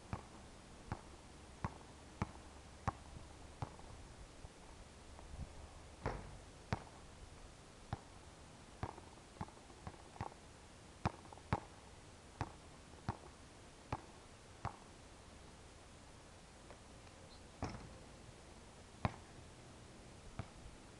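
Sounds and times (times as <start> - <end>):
basketball bouncing on hard court: 6.0 - 6.9.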